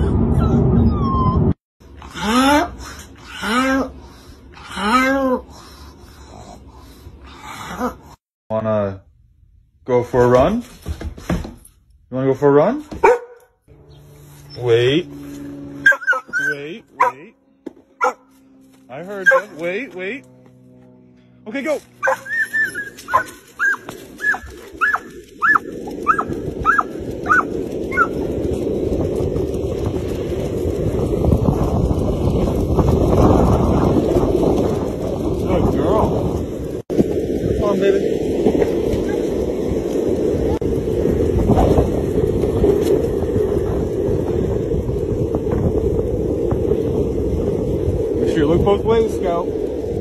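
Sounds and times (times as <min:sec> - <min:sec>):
dog yipping and whining: 0:00.0 - 0:01.6, 0:15.8 - 0:17.2, 0:19.2 - 0:19.5, 0:22.0 - 0:28.1
wheels rumbling on asphalt: 0:12.3 - 0:50.0
wind buffeting microphone: 0:22.0 - 0:50.0.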